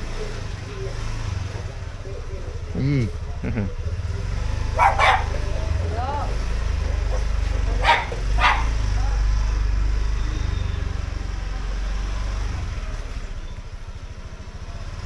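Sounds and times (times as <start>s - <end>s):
low engine rumble: 0.0s - 15.0s
dog barking: 4.6s - 5.7s, 7.0s - 8.9s.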